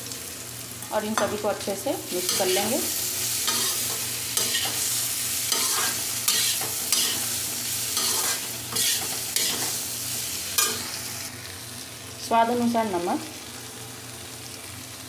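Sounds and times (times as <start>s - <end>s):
frying sizzle: 0.0s - 15.0s
metal spatula scraping a pan: 3.5s - 7.4s, 8.0s - 9.8s.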